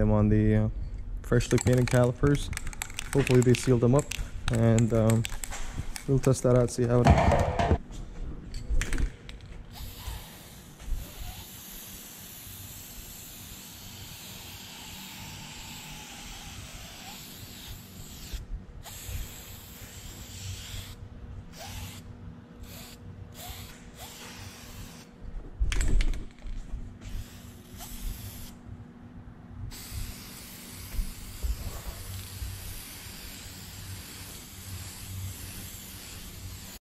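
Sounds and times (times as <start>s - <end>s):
loud knock: 7.0s - 7.8s
aerosol spray can hissing: 9.7s - 22.0s, 22.6s - 25.1s, 27.1s - 28.5s, 29.7s - 36.8s.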